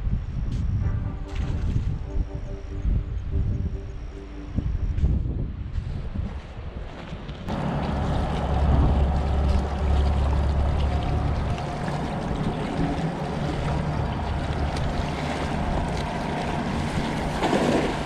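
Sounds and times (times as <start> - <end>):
wind buffeting microphone: 0.0 - 18.0
waves splashing against rocks: 7.5 - 18.0.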